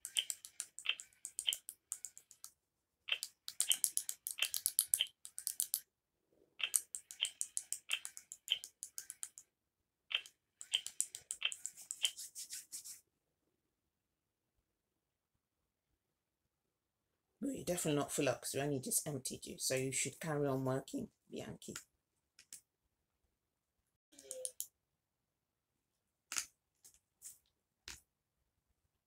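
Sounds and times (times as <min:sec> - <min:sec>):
toy doll crunching clicks: 0:00.0 - 0:02.5, 0:03.1 - 0:05.8, 0:06.6 - 0:09.4, 0:10.1 - 0:11.7.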